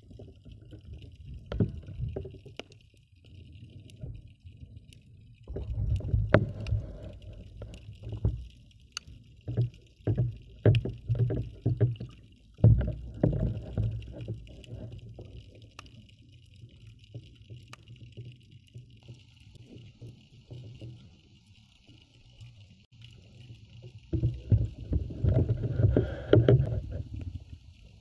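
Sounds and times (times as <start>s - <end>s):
muffled water sloshing and thuds: 0.0s - 2.4s, 5.5s - 15.4s, 23.9s - 28.0s.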